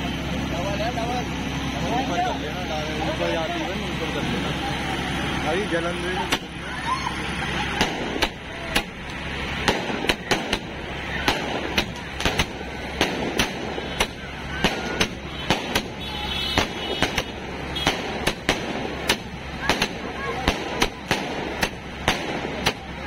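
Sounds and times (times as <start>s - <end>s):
fireworks bursting with sharp bangs: 6.2s - 6.6s, 7.2s - 23.0s.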